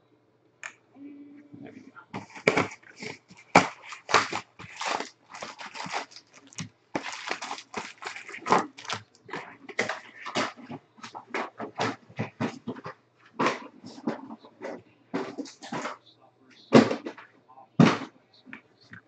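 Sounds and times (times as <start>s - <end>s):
foil wrappers crinkling and tearing: 2.2s - 11.2s.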